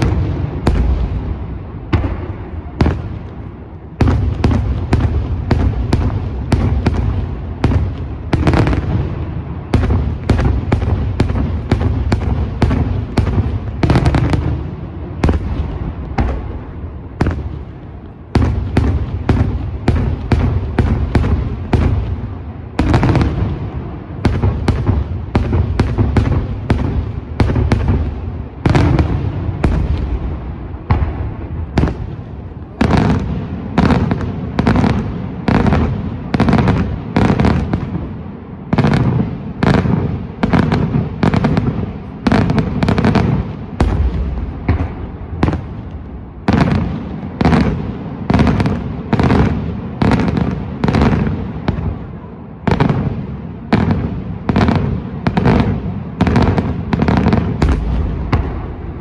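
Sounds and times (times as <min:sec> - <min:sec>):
continuous low rumble: 0:00.0 - 0:59.0.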